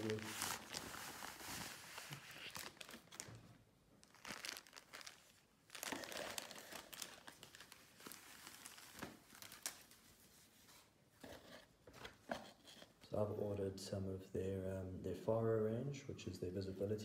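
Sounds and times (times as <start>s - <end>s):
plastic packaging crinkling: 0.0s - 3.4s, 4.0s - 10.0s.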